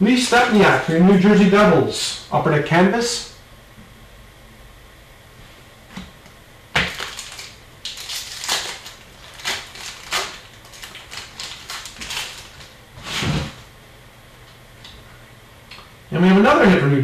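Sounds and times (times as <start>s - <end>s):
paper and foil rustling: 6.8s - 13.6s.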